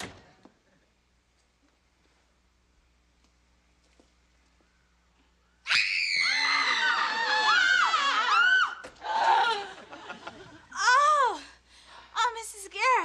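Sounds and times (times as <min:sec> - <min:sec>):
girls screaming: 0:05.7 - 0:09.7
wavering cries: 0:05.7 - 0:09.9.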